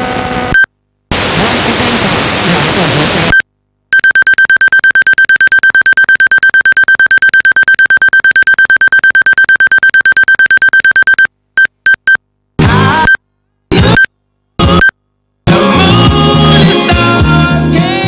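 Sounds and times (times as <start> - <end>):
high buzzy electronic beeps: 4.0 - 12.2.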